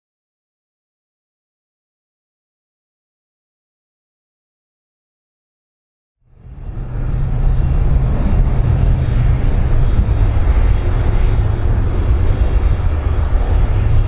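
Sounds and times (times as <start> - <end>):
airplane engines rumbling: 6.2 - 14.0.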